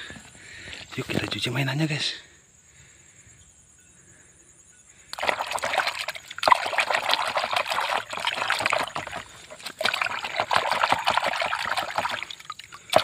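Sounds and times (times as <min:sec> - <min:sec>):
water splashing in plastic basin: 0:05.1 - 0:13.0.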